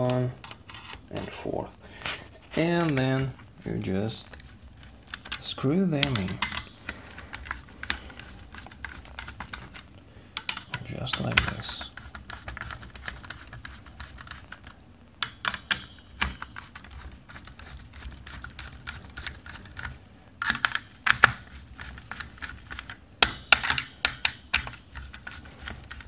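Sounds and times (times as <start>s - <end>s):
screwdriver metallic clicks: 5.1s - 8.0s.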